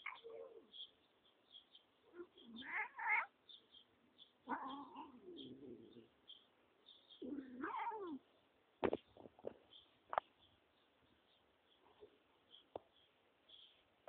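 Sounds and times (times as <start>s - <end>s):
cat meowing: 2.2s - 3.3s, 4.5s - 5.4s, 7.2s - 8.2s.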